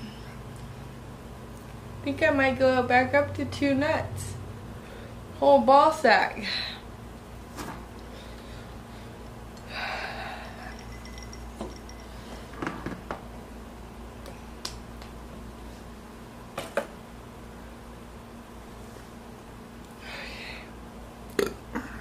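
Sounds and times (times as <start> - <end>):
steady low hum: 0.0 - 22.0
breathy exhale: 9.7 - 10.6.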